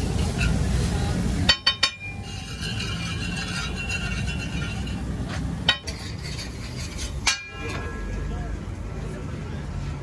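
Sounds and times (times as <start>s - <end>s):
metal utensils clinking: 1.4s - 8.2s.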